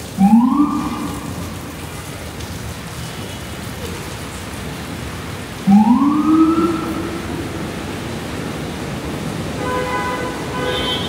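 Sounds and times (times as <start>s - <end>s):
rain hiss: 0.0s - 11.0s
wet street traffic: 0.0s - 11.0s
emergency siren wail: 0.2s - 1.8s, 5.6s - 8.9s.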